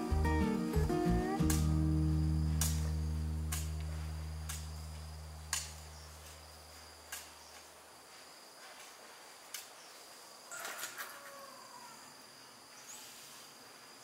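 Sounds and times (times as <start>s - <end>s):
background music: 0.0s - 5.4s
insects chirring: 0.0s - 14.0s
sharp clicks: 5.5s - 5.9s.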